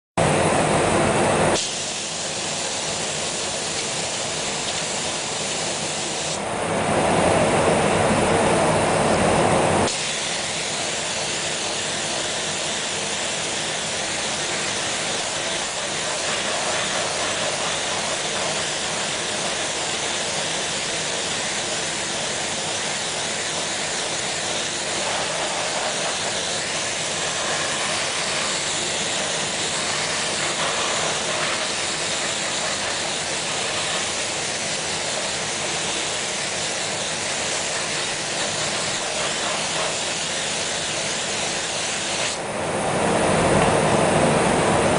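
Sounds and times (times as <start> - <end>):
spray hiss: 1.5 - 6.4, 9.8 - 42.4.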